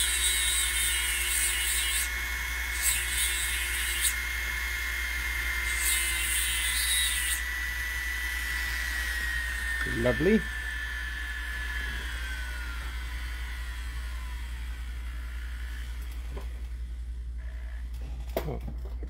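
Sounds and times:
sanding disc grinding metal: 0:05.5 - 0:10.9
flex shaft high whine: 0:07.3 - 0:18.5.

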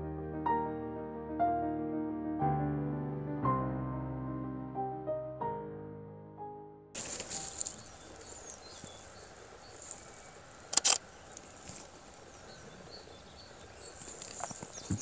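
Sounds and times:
quick loud clicks: 0:10.7 - 0:11.0.

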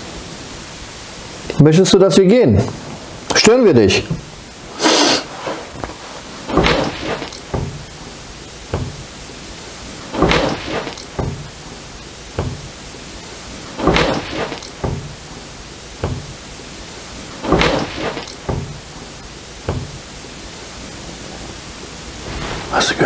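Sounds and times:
steady hiss: 0:00.0 - 0:23.0
wooden knocks and rattles: 0:06.5 - 0:07.9, 0:08.7 - 0:09.0, 0:10.1 - 0:11.5, 0:12.4 - 0:12.7, 0:13.8 - 0:15.2, 0:16.0 - 0:16.4, 0:17.4 - 0:18.8, 0:19.6 - 0:20.0.

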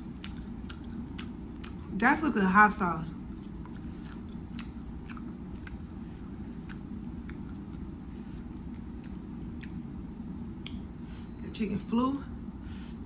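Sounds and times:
chewing with wet clicks: 0:00.0 - 0:02.0, 0:03.2 - 0:10.9
steady low hum: 0:00.0 - 0:13.0.

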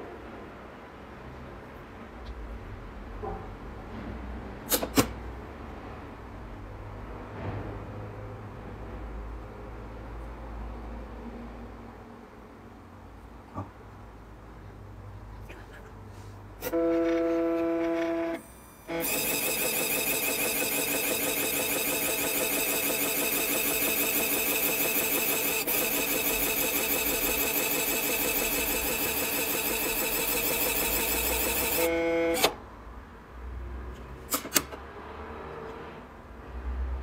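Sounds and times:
printer mechanical whir: 0:16.6 - 0:32.6.

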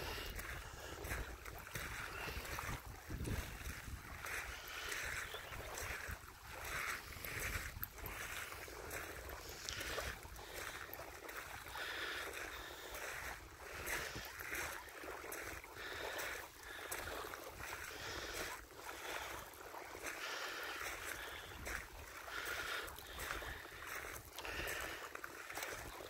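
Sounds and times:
wind rumbling on microphone: 0:00.0 - 0:10.4
wavelets lapping at lake edge: 0:00.0 - 0:26.0.

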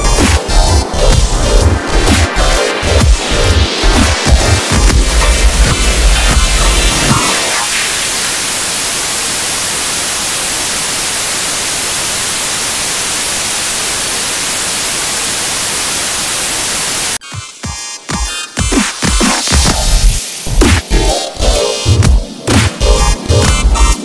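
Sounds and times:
heavy-bass electronic music: 0:00.0 - 0:12.4, 0:17.2 - 0:24.0
tv static hiss: 0:00.0 - 0:17.2.

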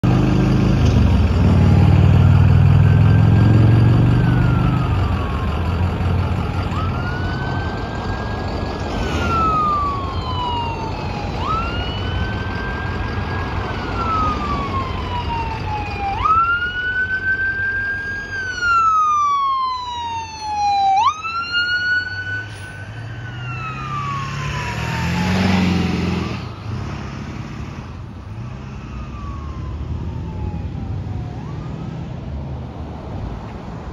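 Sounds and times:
ambulance siren wailing: 0:01.1 - 0:26.8, 0:27.9 - 0:32.4
second siren tone: 0:02.8 - 0:26.6
pickup truck engine passing: 0:21.9 - 0:30.4
vehicle passing: 0:23.1 - 0:33.9.

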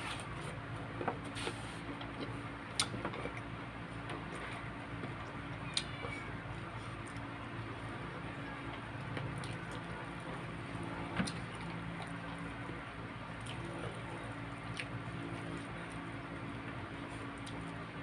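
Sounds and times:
steady low hum: 0:00.0 - 0:18.0
wet chewing and squishing: 0:01.3 - 0:07.4, 0:09.2 - 0:10.5, 0:11.1 - 0:17.8.

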